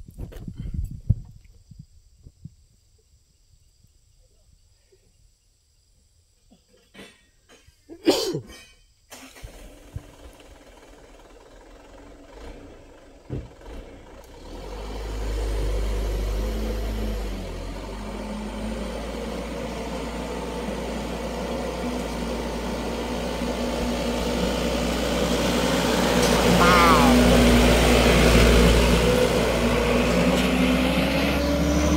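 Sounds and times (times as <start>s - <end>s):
truck diesel engine rumbling: 9.2s - 31.9s.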